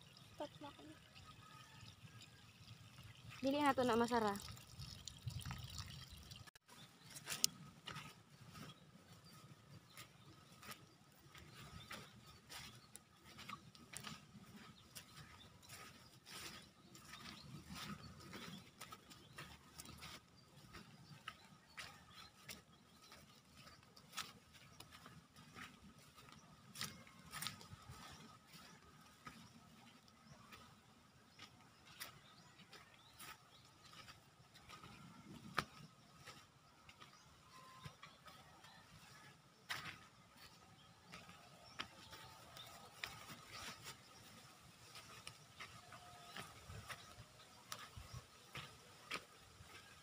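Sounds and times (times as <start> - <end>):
soft clicks and ticks: 7.2 - 8.2.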